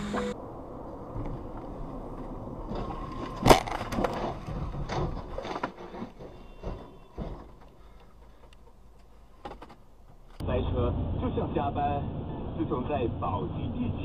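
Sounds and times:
tyre and road noise: 0.0s - 14.0s
knocks and scrapes of tumbling car: 1.1s - 10.4s
car crash: 2.4s - 7.6s.

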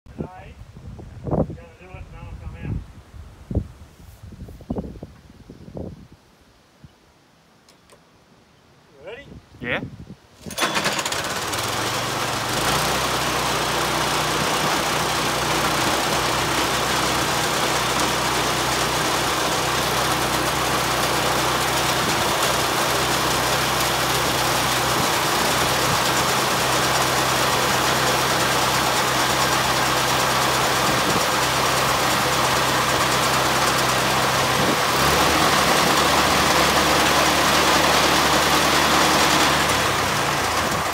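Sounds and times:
engine humming: 10.4s - 40.9s
grain auger rattling: 10.4s - 40.9s.

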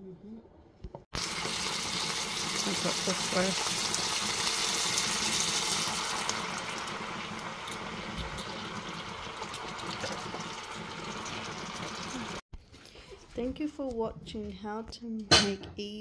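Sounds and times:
liquid pouring into hot pan: 1.2s - 12.4s
sizzling and simmering in pan: 1.2s - 12.4s.

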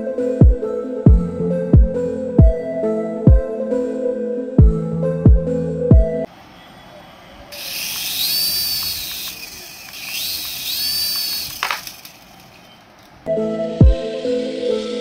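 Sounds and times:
rotor blades whirring: 7.5s - 13.2s
electric motor whine: 7.6s - 12.7s.

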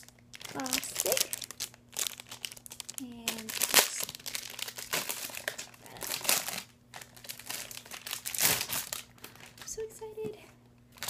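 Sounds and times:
plastic wrap crinkling: 0.0s - 9.8s.

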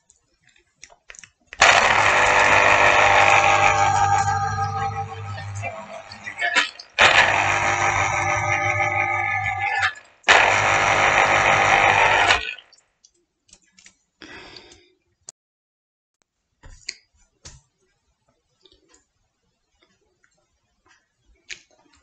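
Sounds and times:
electric juicer whirring: 1.6s - 12.6s.

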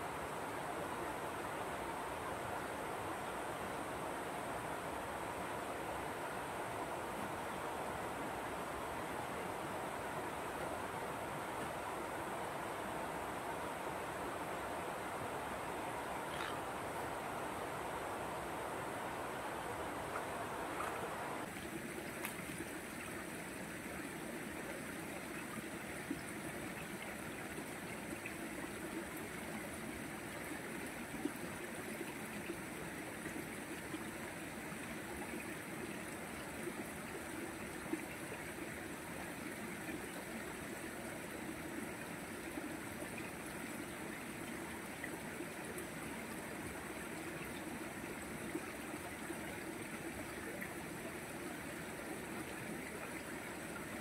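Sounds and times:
stream trickling over rocks: 18.2s - 54.0s.

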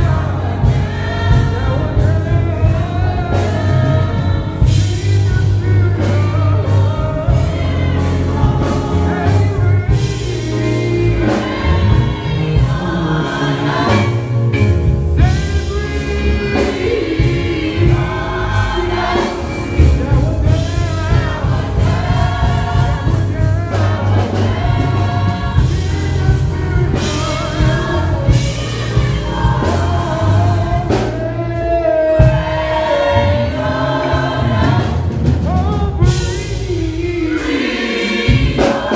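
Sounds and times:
gospel choir singing: 0.0s - 38.9s
live band playing: 0.0s - 38.9s
man singing lead vocals: 15.2s - 24.0s, 24.8s - 33.0s, 35.4s - 38.9s.

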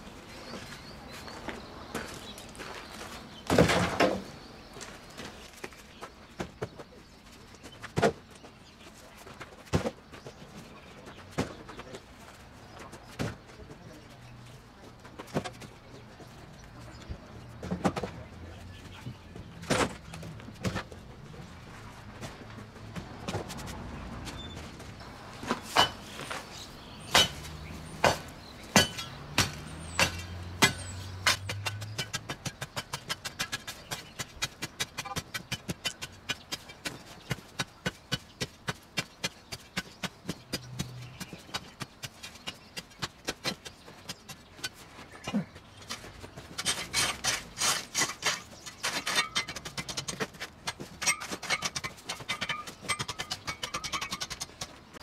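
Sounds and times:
sharp knocks of concrete: 7.9s - 8.2s, 17.6s - 18.2s, 25.4s - 44.8s, 45.9s - 55.0s.

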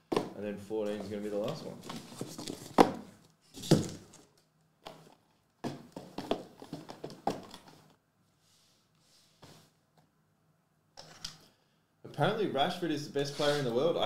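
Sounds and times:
cardboard boxes knocking on desk: 2.1s - 3.1s, 5.6s - 7.6s.

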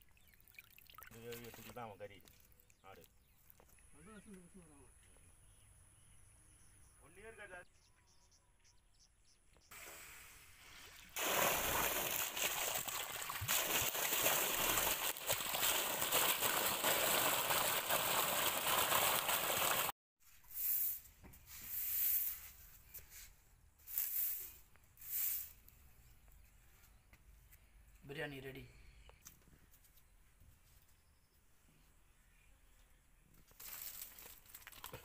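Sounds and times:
water gushing and splashing: 10.7s - 19.9s.

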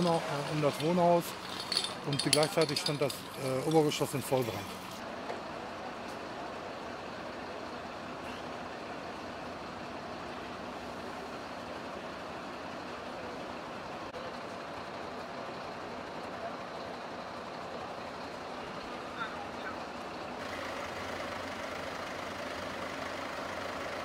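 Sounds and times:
fire truck engine running: 0.0s - 24.0s.

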